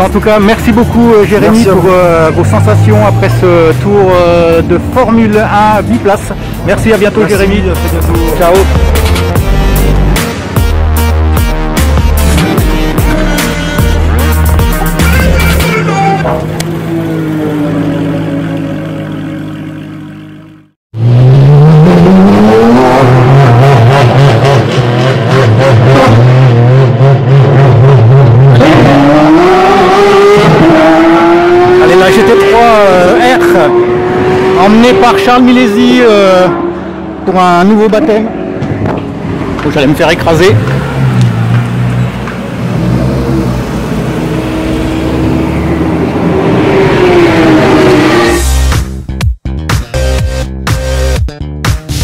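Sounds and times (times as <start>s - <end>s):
racing car engine revving up: 11.7s - 49.0s.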